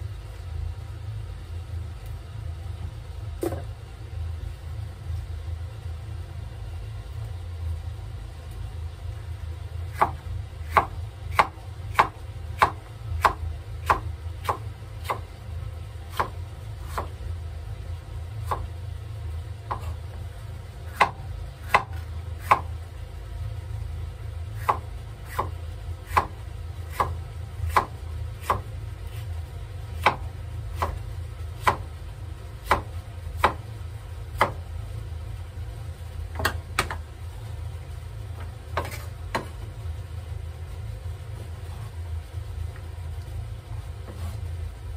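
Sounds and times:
low hum: 0.0s - 44.9s.

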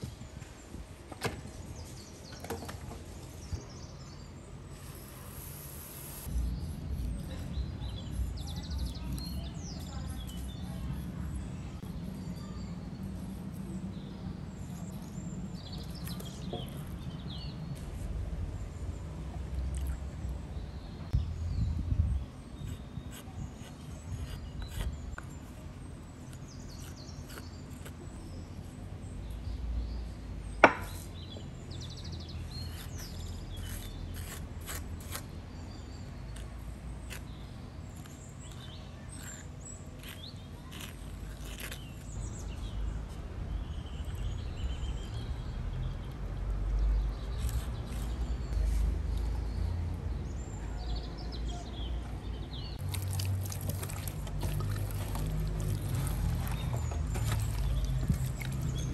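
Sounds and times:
birds chirping faintly: 0.0s - 58.9s
wooden spoon scraping wooden bowl: 52.8s - 58.9s.

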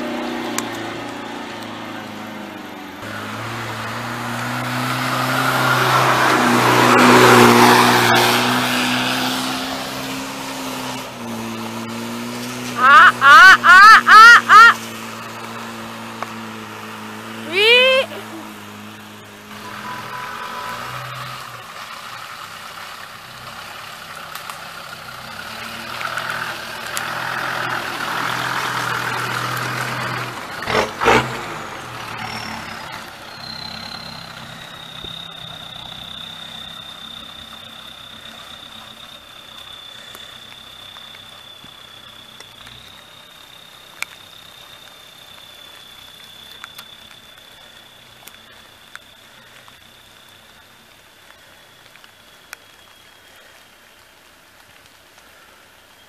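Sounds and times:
high-pitched whine: 31.4s - 54.8s.

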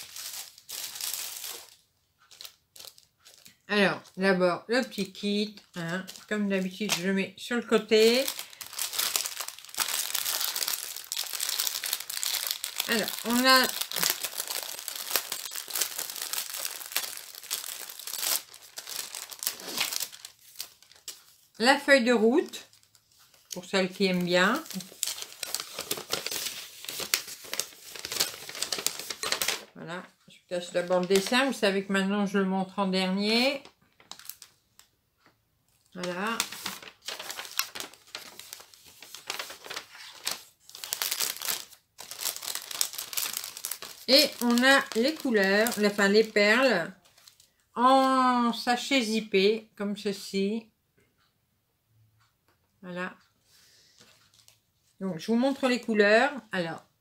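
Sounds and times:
plastic wrapping crinkling: 0.0s - 4.2s, 4.8s - 29.8s, 30.8s - 31.6s, 33.5s - 34.9s, 35.9s - 47.6s, 54.0s - 54.6s.

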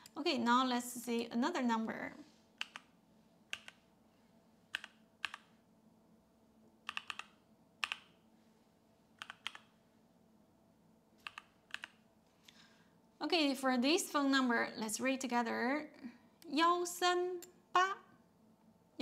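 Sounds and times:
computer keyboard keystrokes: 2.6s - 2.9s, 3.5s - 3.8s, 4.7s - 5.5s, 6.9s - 8.2s, 9.2s - 9.7s, 11.2s - 12.0s.

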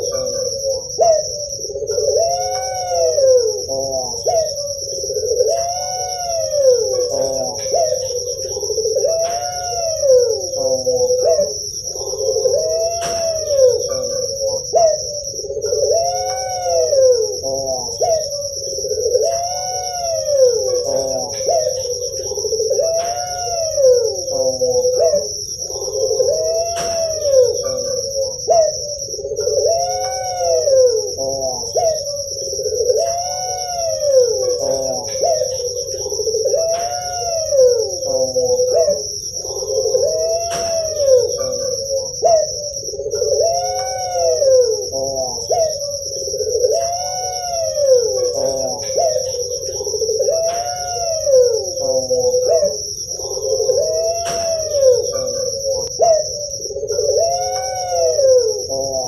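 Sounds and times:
dove cooing: 0.0s - 59.0s
steady high-pitched trill: 0.0s - 59.0s.

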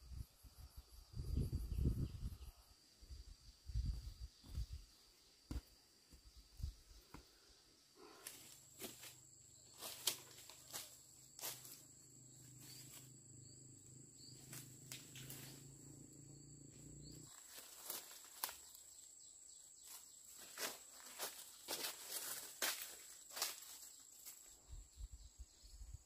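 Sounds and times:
high insect drone: 0.0s - 26.0s
footsteps on dry leaf litter: 9.7s - 11.8s, 17.3s - 18.8s, 20.3s - 24.4s.

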